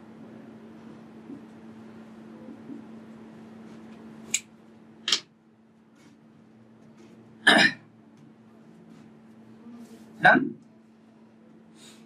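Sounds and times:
low electrical hum: 0:00.0 - 0:12.0
man clearing throat: 0:07.4 - 0:07.9.

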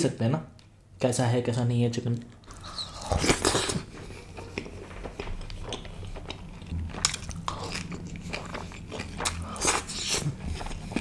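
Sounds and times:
close chewing of food: 0:02.4 - 0:11.0.

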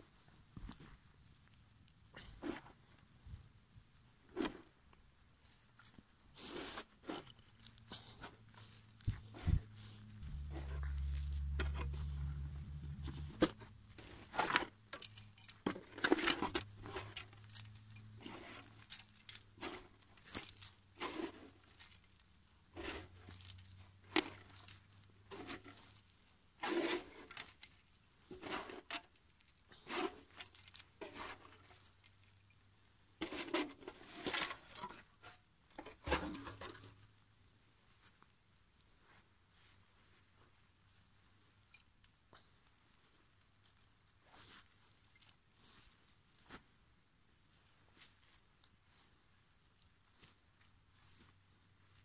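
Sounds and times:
soil rustling scattered by hand: 0:00.1 - 0:32.6, 0:47.5 - 0:52.0
low rumble: 0:09.5 - 0:13.4.

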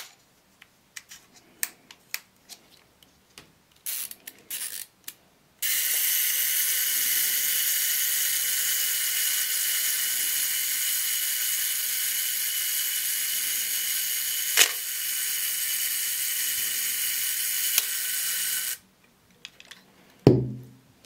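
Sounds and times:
camera self-timer whirring: 0:05.6 - 0:18.8.

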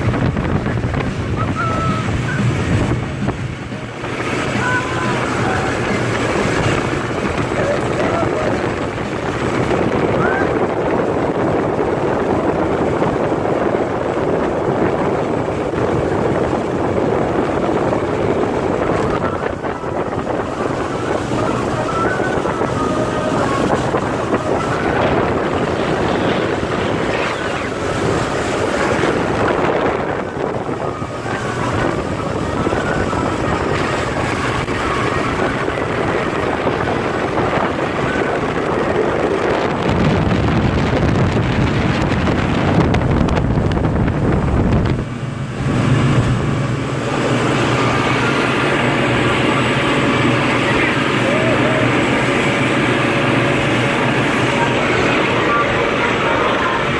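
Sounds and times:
speedboat engine drone: 0:00.0 - 0:56.9
water rushing off hull: 0:00.0 - 0:56.9
wind buffeting microphone: 0:00.0 - 0:56.9.

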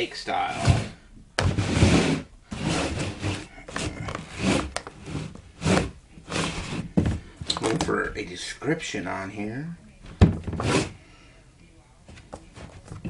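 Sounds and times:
cardboard box scraping on table: 0:00.4 - 0:07.1, 0:10.5 - 0:11.0.

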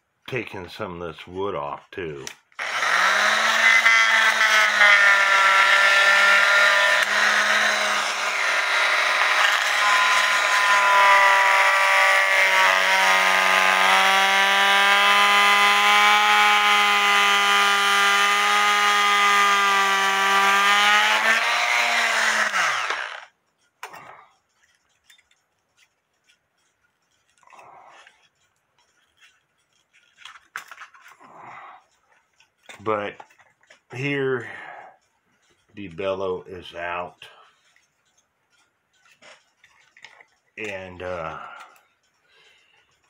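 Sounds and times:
electric cutting tool cutting wood: 0:02.6 - 0:23.3.

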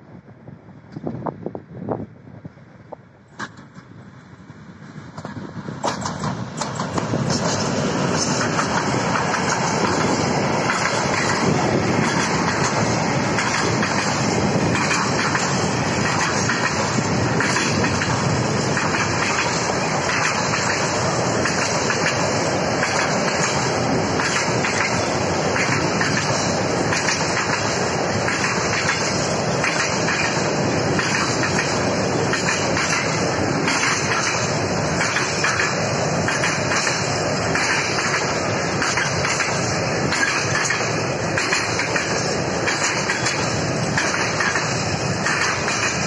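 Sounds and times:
diesel locomotive passing: 0:00.0 - 0:46.0
train wagons rolling by: 0:02.5 - 0:46.0
wheels clacking over rails: 0:05.1 - 0:46.0.

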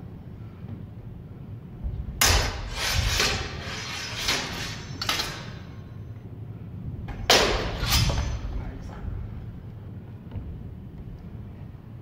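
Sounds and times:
swords clashing: 0:02.2 - 0:05.7, 0:07.3 - 0:08.5.

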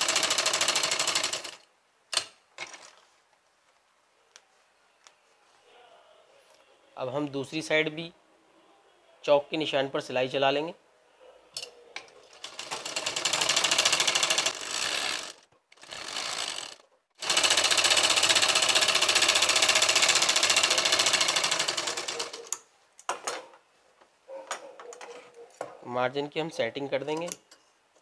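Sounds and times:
sewing machine stitching: 0:00.0 - 0:01.6, 0:12.3 - 0:22.6
sewing machine clicks: 0:00.0 - 0:02.3, 0:12.3 - 0:22.6.

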